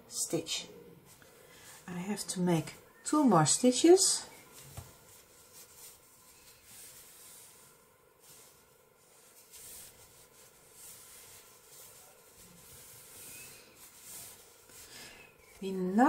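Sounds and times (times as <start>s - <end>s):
low room hiss: 0.0s - 16.0s
yarn rustling through stitches: 1.1s - 16.0s.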